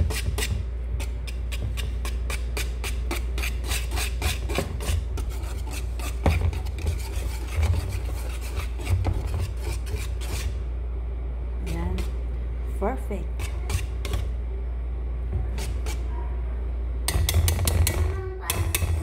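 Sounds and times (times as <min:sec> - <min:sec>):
whisk rasping in metal bowl: 0:00.0 - 0:10.7, 0:11.6 - 0:12.2, 0:13.2 - 0:14.4, 0:15.5 - 0:16.1, 0:17.1 - 0:19.0.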